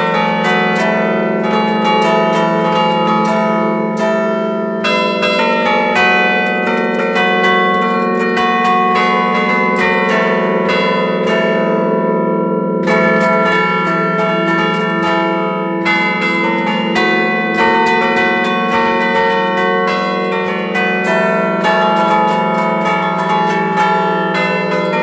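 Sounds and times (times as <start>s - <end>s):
deep bell hum: 0.0s - 25.0s
quick church bell strikes: 0.0s - 25.0s.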